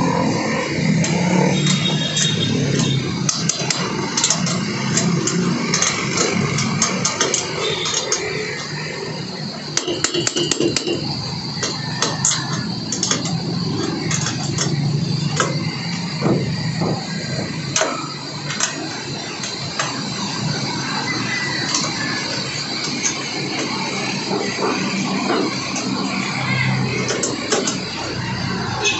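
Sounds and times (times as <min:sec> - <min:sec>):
steady background hum: 0:00.0 - 0:28.9.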